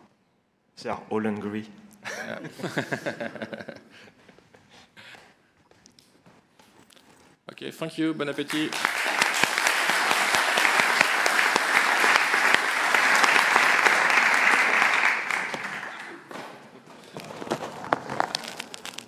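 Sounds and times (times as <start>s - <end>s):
audience applause: 8.4s - 16.4s.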